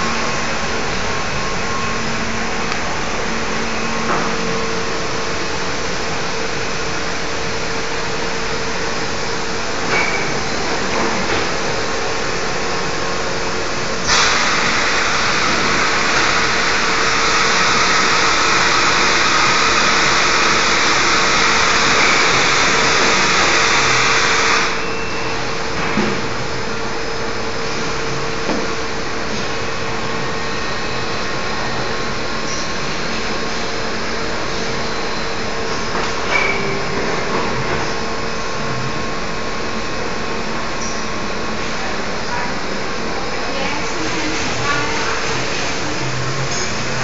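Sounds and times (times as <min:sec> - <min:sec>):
gluing machine humming: 0:00.0 - 0:25.0
loud hiss: 0:13.9 - 0:24.8.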